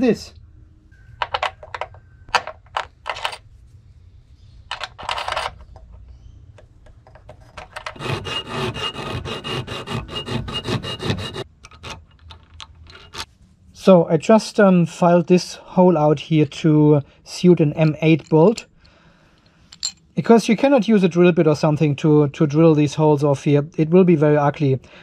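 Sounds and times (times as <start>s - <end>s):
file rasping on metal: 7.9s - 12.0s.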